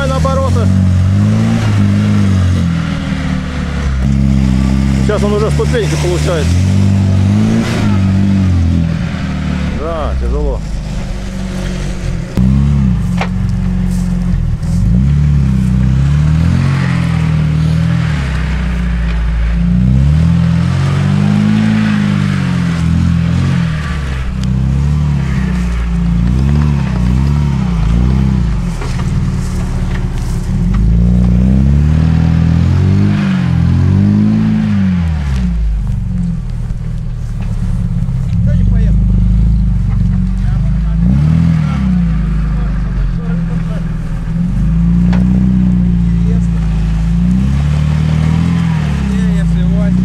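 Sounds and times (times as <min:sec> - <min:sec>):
suv engine revving under load: 0:00.0 - 0:50.0.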